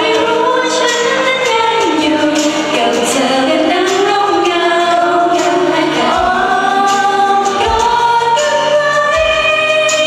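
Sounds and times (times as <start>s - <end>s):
backing track: 0.0s - 10.0s
female voices singing pop: 0.0s - 10.0s.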